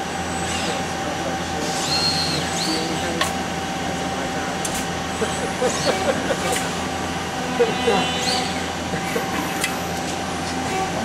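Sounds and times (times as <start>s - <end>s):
machine cell hum: 0.0s - 11.0s
robot arm servo motors whining: 4.7s - 6.8s, 7.4s - 8.8s.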